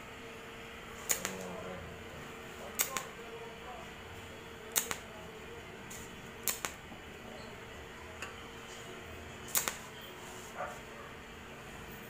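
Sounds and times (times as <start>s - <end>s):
steady hum: 0.0s - 12.0s
welding torch arc clicks: 1.0s - 1.6s, 2.6s - 3.2s, 4.7s - 5.2s, 5.9s - 6.8s, 9.5s - 9.9s.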